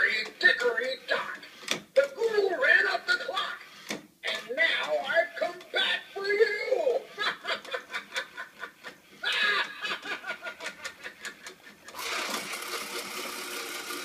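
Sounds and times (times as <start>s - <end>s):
recorded cackle: 6.6s - 12.0s
motor whir: 11.8s - 14.0s.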